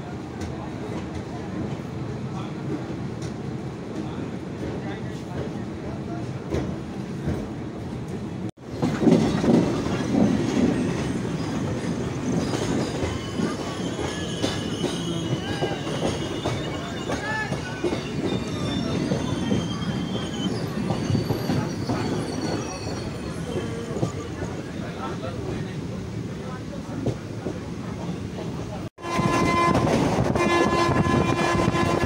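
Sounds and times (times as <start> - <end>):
train wheels rumbling on rails: 0.1 - 32.0
high wheel squeals: 9.9 - 25.0.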